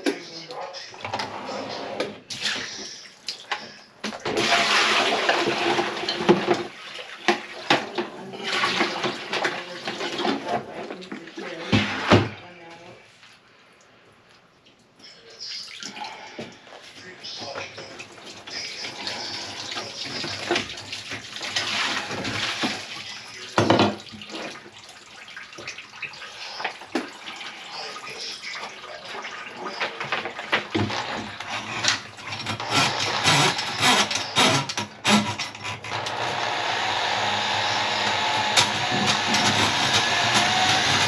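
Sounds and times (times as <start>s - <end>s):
water sloshing in sink: 0.0s - 12.6s, 15.5s - 36.0s
knocks and clanks: 29.9s - 41.0s
steady mechanical noise: 30.8s - 41.0s.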